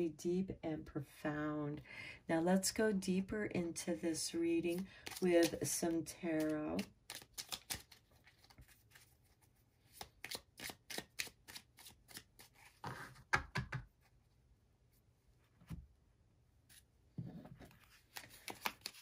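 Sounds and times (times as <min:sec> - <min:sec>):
cards being shuffled: 0:04.7 - 0:13.1, 0:17.6 - 0:19.0.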